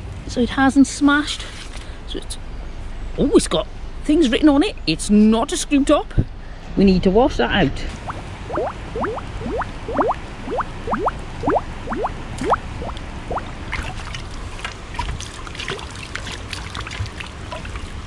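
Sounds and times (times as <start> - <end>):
water splashing and sloshing: 7.9 - 18.0
bottle glugging underwater: 8.0 - 18.0.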